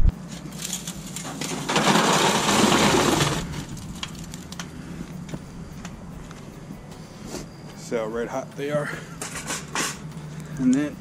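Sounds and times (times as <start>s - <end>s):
charcoal clattering into foil pan: 0.4s - 4.6s.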